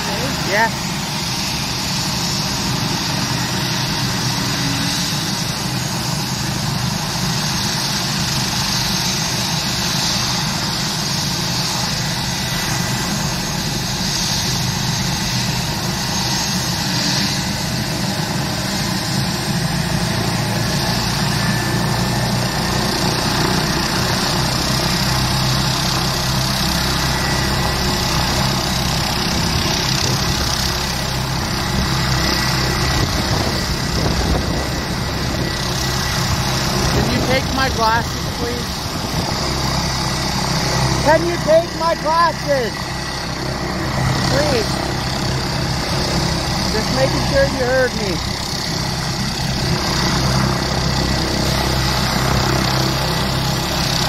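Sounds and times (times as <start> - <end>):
helicopter turbine whine: 0.0 - 54.0.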